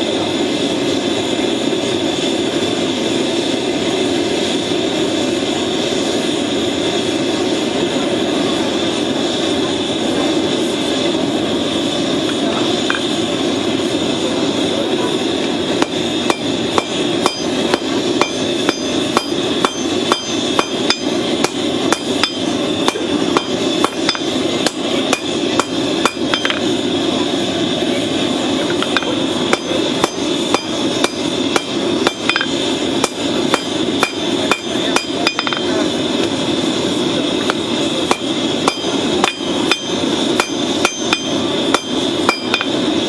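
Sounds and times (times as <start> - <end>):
steady rushing noise: 0.0 - 43.0
hammer striking hot steel on anvil: 15.8 - 26.8, 28.7 - 36.3, 37.4 - 42.9.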